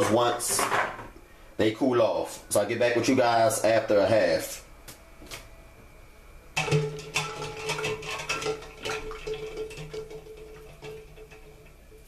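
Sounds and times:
steady low hum: 0.0 - 12.0
eggs and ice clinking on metal: 6.6 - 12.0.

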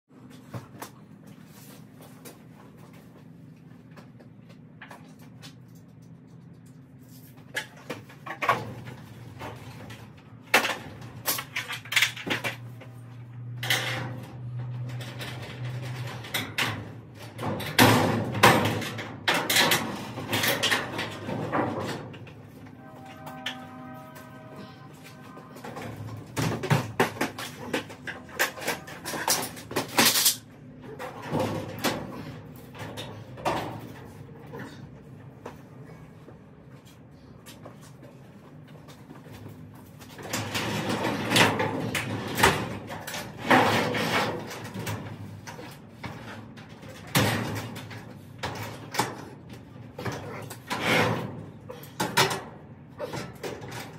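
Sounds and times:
low steady hum: 0.1 - 43.6
metal ladder and door parts clanking: 7.1 - 34.9, 38.9 - 53.9.

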